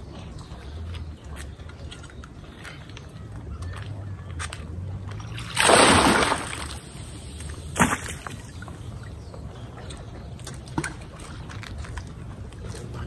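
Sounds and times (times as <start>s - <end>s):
water splash: 5.3s - 8.6s.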